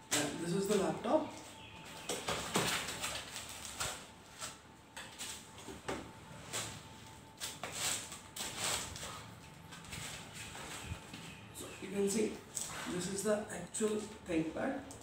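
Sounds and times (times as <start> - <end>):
plastic wrap rustling: 2.0 - 4.6.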